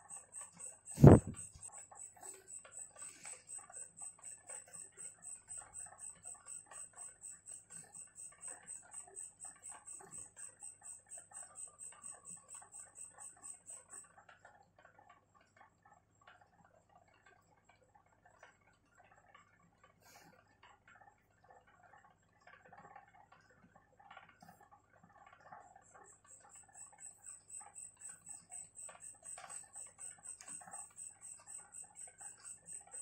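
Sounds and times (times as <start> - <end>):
pen scratching on paper: 1.0 - 1.4.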